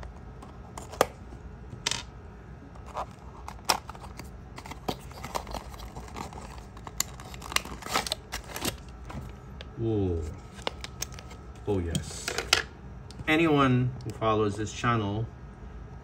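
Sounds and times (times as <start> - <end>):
cardboard rustle: 2.8 - 9.4.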